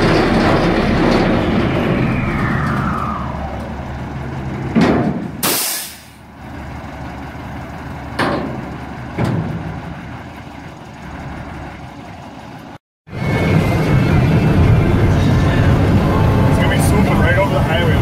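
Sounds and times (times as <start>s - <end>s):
diesel truck engine running: 0.0s - 18.0s
sharp air hiss: 5.4s - 6.2s.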